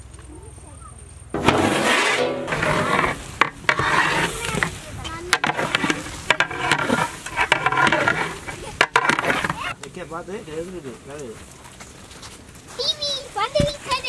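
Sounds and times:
spatula scraping a pot: 1.4 - 9.8
rice rustling: 1.4 - 12.8.

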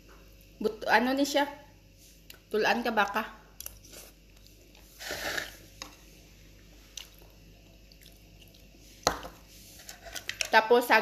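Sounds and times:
slurping broth: 4.8 - 5.6.

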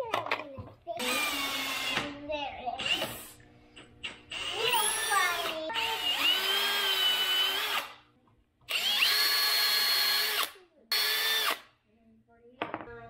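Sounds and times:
cordless drill boring into wood: 1.0 - 2.0, 2.8 - 3.4, 4.3 - 8.0, 8.7 - 11.7.

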